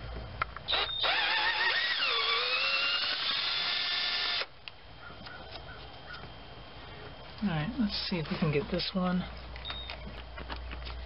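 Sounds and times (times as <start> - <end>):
bolt squealing whine: 0.4 - 4.5, 9.6 - 11.0.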